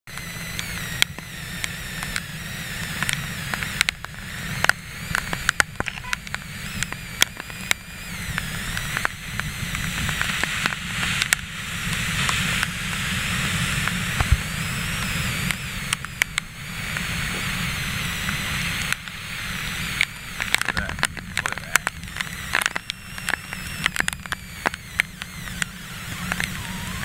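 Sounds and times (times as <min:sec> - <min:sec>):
raindrops clicking on camera: 0:20.0 - 0:25.7.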